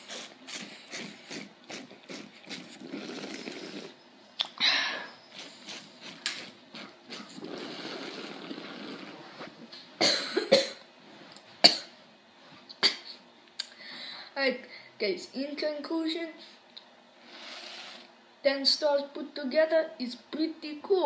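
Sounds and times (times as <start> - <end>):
air slurping through a straw: 0.0 - 4.0, 5.3 - 9.6, 17.2 - 18.1.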